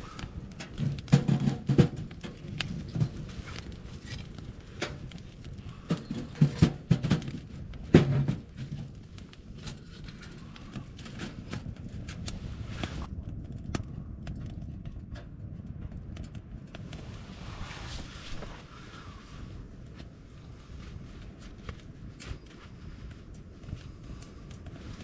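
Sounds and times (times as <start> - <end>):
fire crackling and popping: 0.0 - 25.0
logs knocking against stove: 0.6 - 3.2, 5.8 - 9.0.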